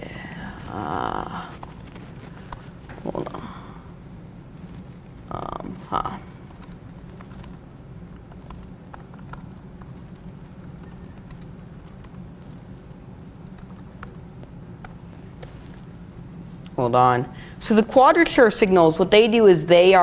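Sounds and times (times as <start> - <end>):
steady low hum: 0.0 - 20.0
computer keyboard typing: 1.6 - 2.7, 6.0 - 12.6, 13.4 - 14.2, 14.8 - 15.0.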